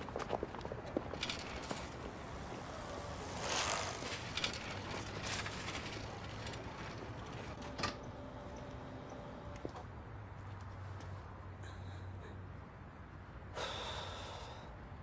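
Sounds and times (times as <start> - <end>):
bicycle riding past: 0.0 - 9.6.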